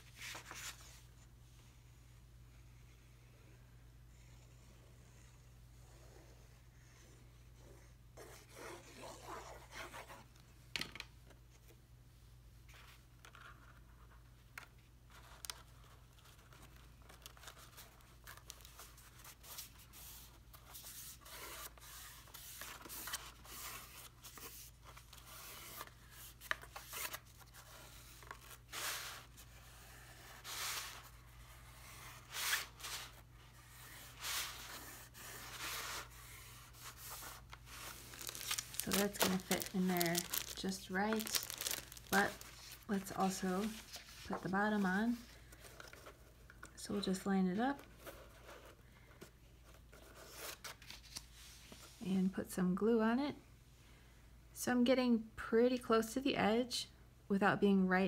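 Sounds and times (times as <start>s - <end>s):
hands rustling card stock: 35.4s - 47.2s.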